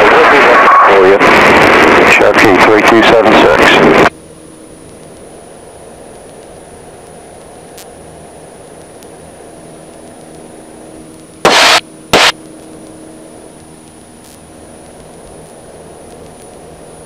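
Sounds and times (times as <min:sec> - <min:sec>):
radio static bursts: 0:00.0 - 0:04.1, 0:11.4 - 0:12.4
airplane engine drone: 0:00.0 - 0:17.0
faint high whine: 0:00.0 - 0:17.0.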